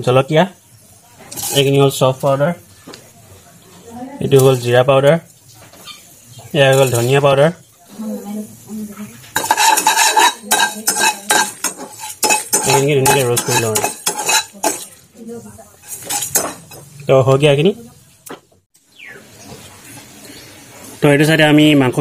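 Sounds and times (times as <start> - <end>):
spices sizzling: 0.0 - 21.1
metal spatula scraping pan: 1.3 - 2.0, 6.7 - 7.3, 9.3 - 15.0, 15.8 - 16.9.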